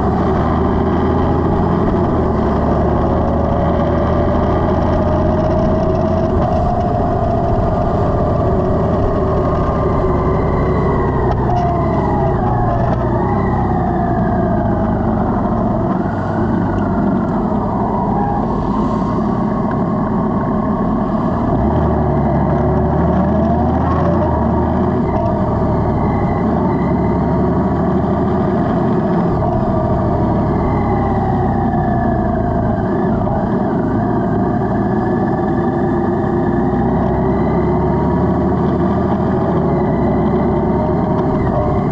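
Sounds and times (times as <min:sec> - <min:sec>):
motorcycle engine running: 0:00.0 - 0:17.8.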